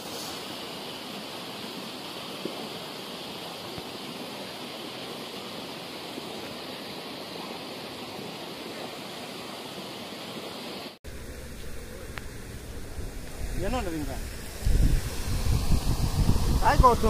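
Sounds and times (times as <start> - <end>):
water rushing through canal: 0.0 - 17.0
wind rumble on microphone: 11.1 - 17.0.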